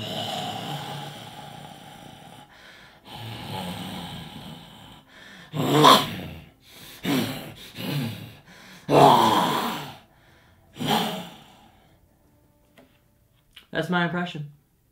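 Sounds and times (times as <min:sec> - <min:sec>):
man growling: 0:00.0 - 0:10.1, 0:10.7 - 0:11.7.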